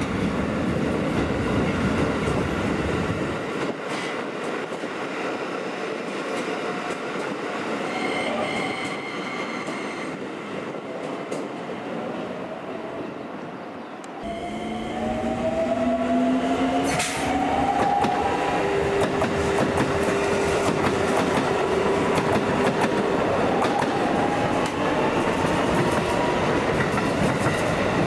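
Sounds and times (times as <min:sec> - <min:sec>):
train traction motors whining: 0:14.2 - 0:23.8.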